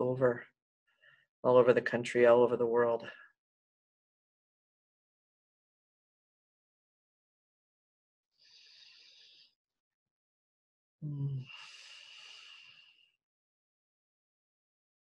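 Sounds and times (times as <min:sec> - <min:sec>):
woman breathing: 0:08.4 - 0:09.5, 0:11.4 - 0:13.2
woman humming briefly: 0:11.0 - 0:11.6.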